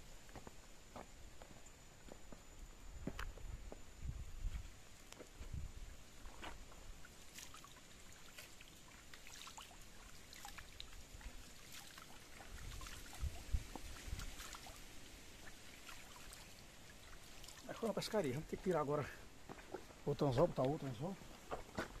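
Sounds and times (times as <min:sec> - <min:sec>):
faint water trickling over rocks: 0:04.4 - 0:22.0.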